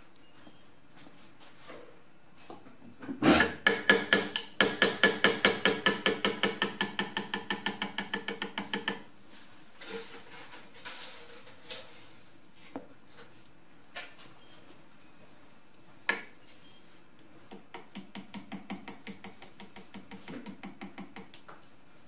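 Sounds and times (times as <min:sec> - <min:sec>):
hammer tapping pin punch on steel: 0:03.4 - 0:09.0, 0:17.5 - 0:21.5.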